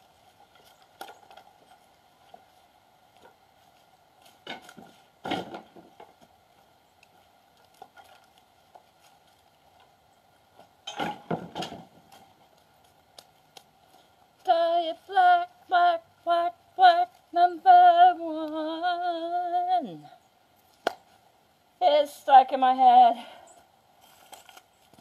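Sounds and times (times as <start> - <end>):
woman singing: 14.4 - 20.2, 21.8 - 23.4.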